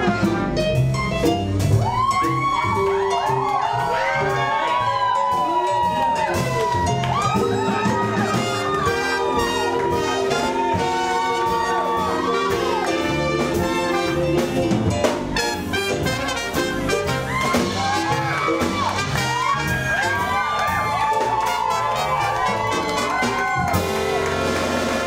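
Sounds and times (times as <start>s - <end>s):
drum hits: 0.0s - 25.0s
jazz band playing: 0.0s - 25.0s
upright bass: 0.0s - 25.0s.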